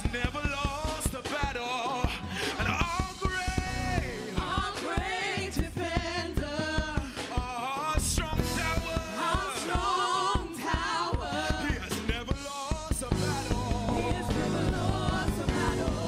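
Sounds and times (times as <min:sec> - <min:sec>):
band playing drums bass and guitar: 0:00.0 - 0:16.0
group of voices singing: 0:00.0 - 0:16.0.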